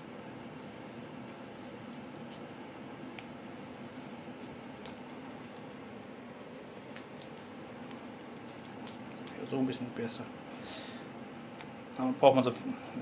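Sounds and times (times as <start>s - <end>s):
steady background hum: 0.0s - 13.0s
chestnut shells cracking: 4.8s - 6.3s, 6.9s - 9.4s.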